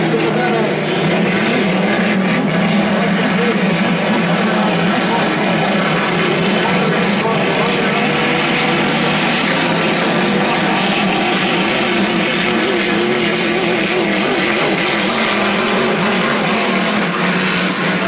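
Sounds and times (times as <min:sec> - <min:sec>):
racing boat engines droning: 0:00.0 - 0:18.0.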